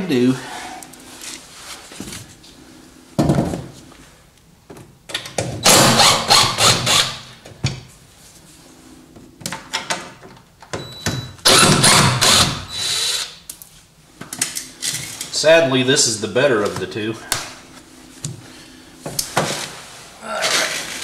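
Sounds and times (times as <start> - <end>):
impact driver bursts: 5.6 - 7.3, 11.4 - 13.4.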